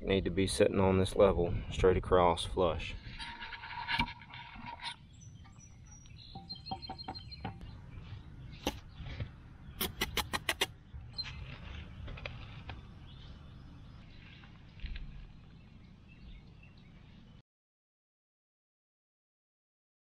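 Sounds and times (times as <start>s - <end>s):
birds chirping: 4.2s - 17.4s
trowel tapping bricks: 9.8s - 10.7s
trowel scraping mortar: 9.8s - 12.7s.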